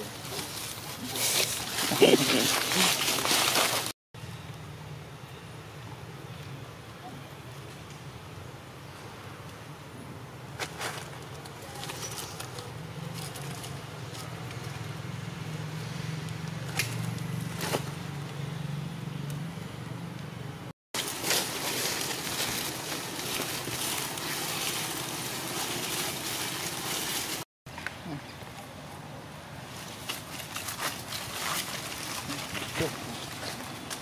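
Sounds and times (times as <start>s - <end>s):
dry leaves crackling: 0.0s - 4.0s, 10.6s - 15.0s, 21.0s - 27.5s, 29.3s - 34.0s.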